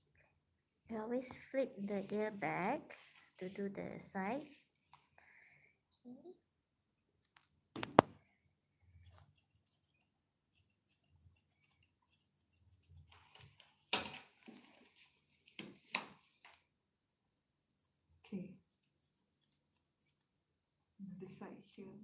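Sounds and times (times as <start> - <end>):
scissors snipping fur: 9.1 - 13.4, 17.7 - 20.3.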